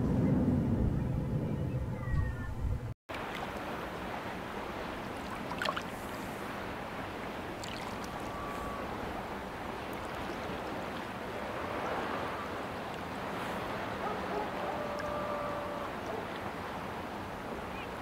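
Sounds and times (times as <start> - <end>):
river water flowing: 3.1 - 18.0
faint whistle-like tone: 8.2 - 8.9.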